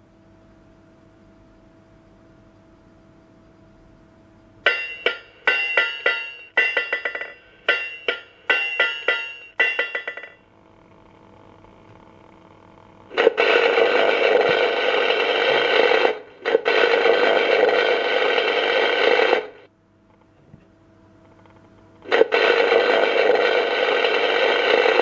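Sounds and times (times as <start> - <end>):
arc welding hissing buzz: 10.5 - 19.7, 22.0 - 25.0.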